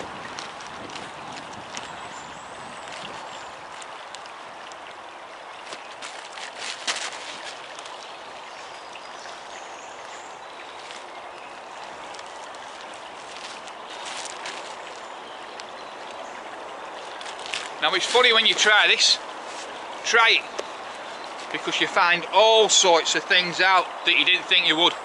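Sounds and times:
stream running over gravel: 0:00.0 - 0:25.0
jacket fabric rustling: 0:05.5 - 0:08.4, 0:10.6 - 0:16.2, 0:16.8 - 0:20.0.

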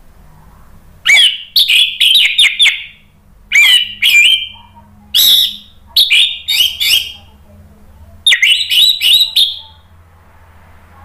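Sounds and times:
thrush singing: 0:01.1 - 0:07.4, 0:08.2 - 0:10.0.

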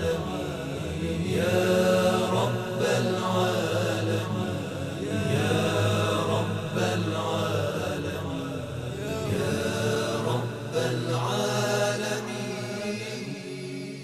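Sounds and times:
devotional chanting: 0:00.0 - 0:14.0.

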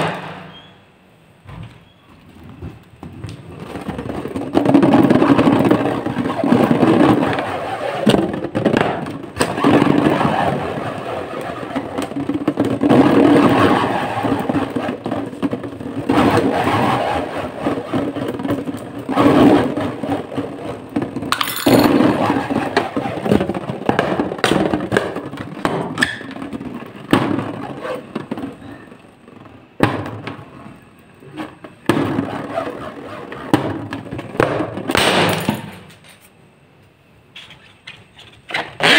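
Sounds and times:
fingers rubbing a rubber balloon: 0:02.4 - 0:26.0, 0:26.7 - 0:28.9, 0:31.2 - 0:34.2, 0:38.5 - 0:38.9.

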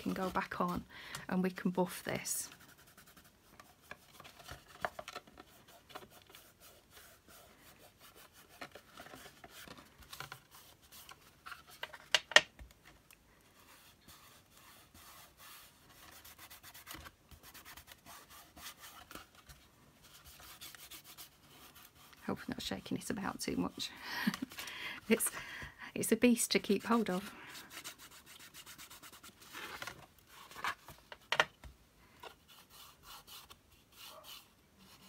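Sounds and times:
wax rubbing on board: 0:05.4 - 0:09.8, 0:13.6 - 0:19.2.

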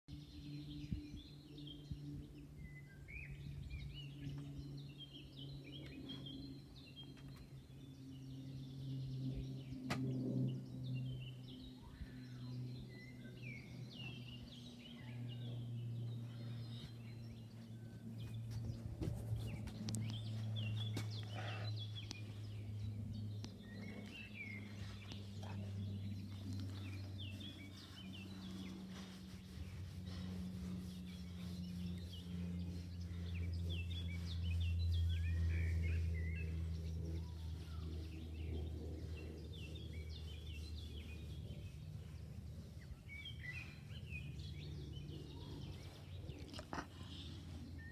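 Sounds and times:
small birds chirping: 0:00.1 - 0:47.9
steady low hum: 0:00.1 - 0:47.9.

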